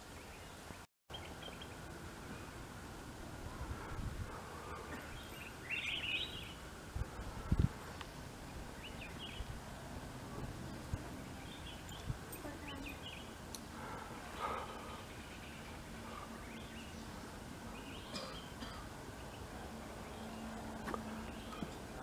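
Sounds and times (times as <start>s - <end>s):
bird chirps: 4.9s - 6.6s.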